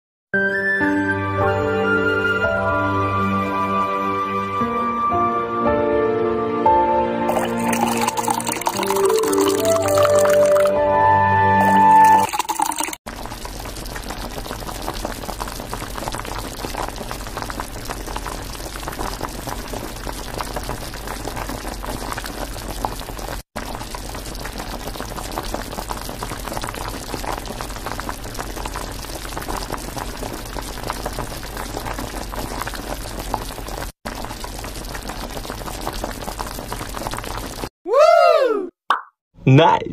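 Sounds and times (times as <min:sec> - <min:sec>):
food sizzling in oil: 0:11.6 - 0:37.7.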